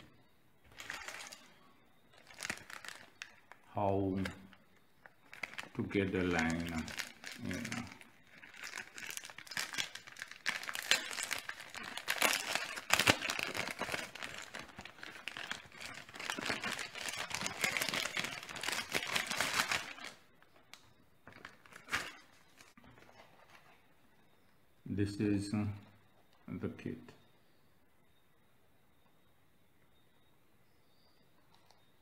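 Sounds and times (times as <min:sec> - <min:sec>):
plastic packaging crinkling: 0:00.6 - 0:23.8.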